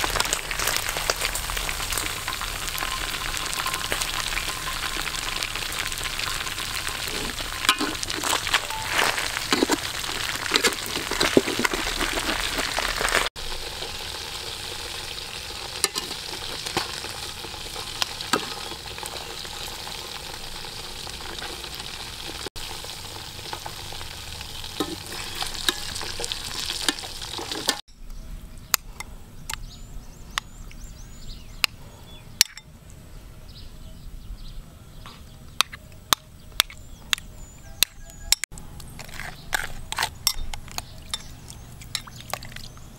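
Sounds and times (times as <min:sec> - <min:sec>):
deep-frying sizzle with spitting: 0:00.0 - 0:27.8.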